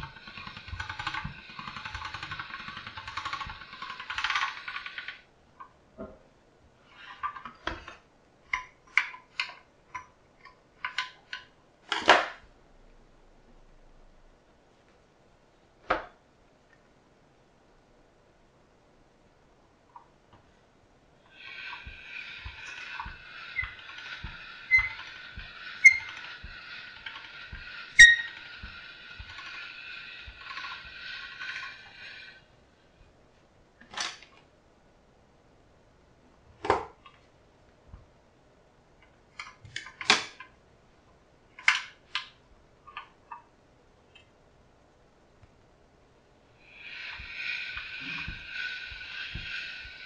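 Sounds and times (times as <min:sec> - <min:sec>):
metal pasta machine clicks and knocks: 0:00.0 - 0:05.2, 0:21.4 - 0:31.9, 0:41.6 - 0:42.3.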